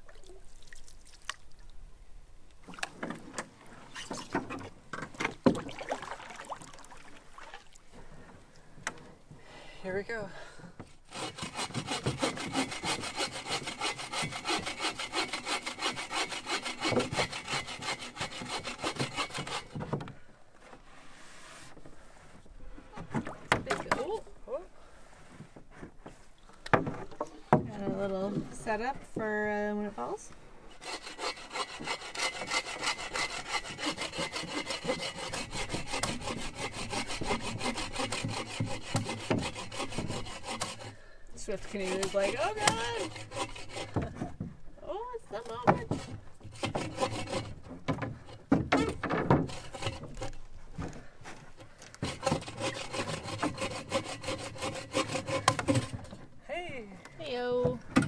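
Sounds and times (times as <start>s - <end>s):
handsaw cutting log: 11.0s - 20.0s, 30.7s - 44.3s, 45.4s - 50.5s, 51.9s - 56.2s.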